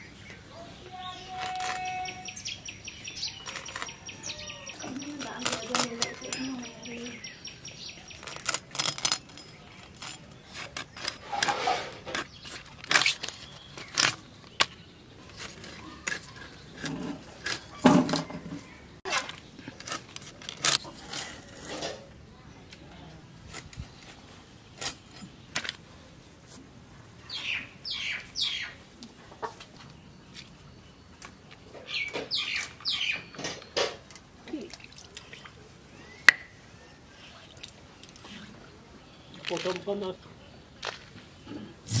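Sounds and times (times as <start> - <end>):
blade clicking and scraping through fish: 4.8 - 6.5, 8.0 - 14.6.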